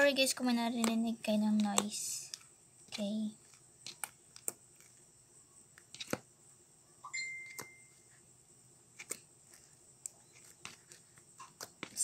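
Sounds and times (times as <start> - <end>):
high beep tone: 7.0 - 8.0.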